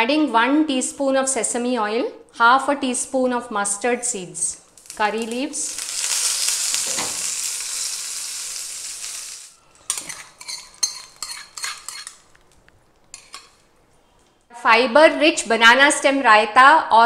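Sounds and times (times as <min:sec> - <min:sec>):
seeds sizzling in hot oil: 0:04.6 - 0:12.3
metal spoon scraping a pan: 0:09.6 - 0:12.4, 0:13.1 - 0:13.7.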